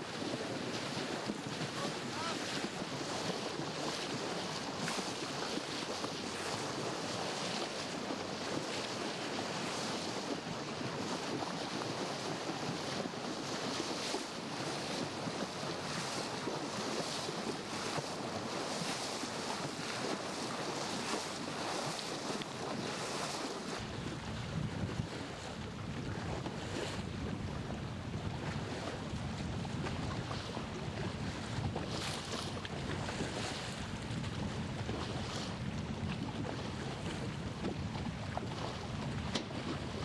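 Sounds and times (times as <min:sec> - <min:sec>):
wind and water rushing: 0:00.0 - 0:40.0
wind buffeting microphone: 0:19.8 - 0:40.0.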